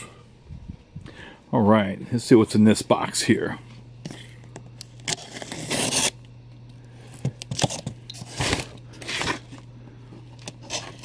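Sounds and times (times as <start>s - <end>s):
packing tape slit with a blade: 4.8s - 6.2s, 10.4s - 11.0s.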